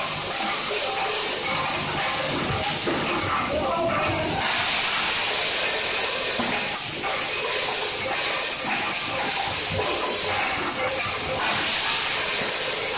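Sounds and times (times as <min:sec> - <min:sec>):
packaging machine hissing: 0:04.2 - 0:12.9.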